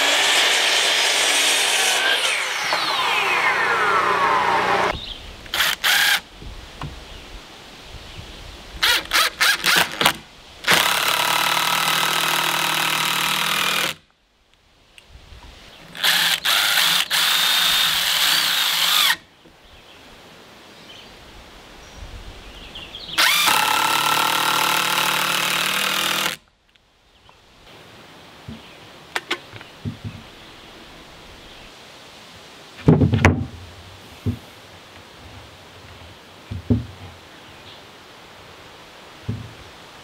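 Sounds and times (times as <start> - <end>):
impact driver driving screws: 23.2 - 26.4.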